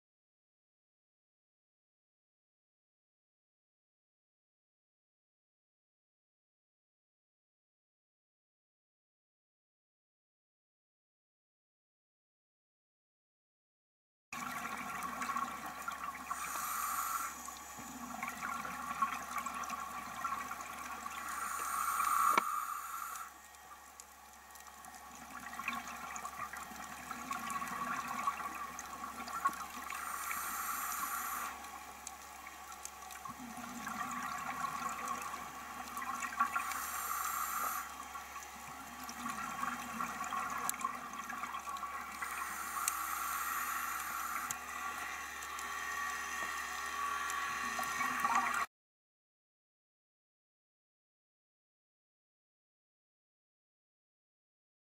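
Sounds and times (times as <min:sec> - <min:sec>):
underwater regulator breathing bubbles: 0:16.3 - 0:20.4, 0:21.1 - 0:23.3, 0:29.9 - 0:31.6, 0:36.4 - 0:37.9, 0:42.1 - 0:44.6.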